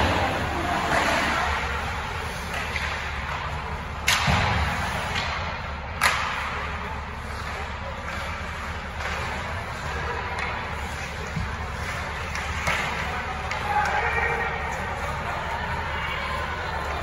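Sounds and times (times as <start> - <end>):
low rumble of ice rink: 0.0 - 17.0
stick and puck cracks: 2.4 - 6.7, 8.0 - 14.4.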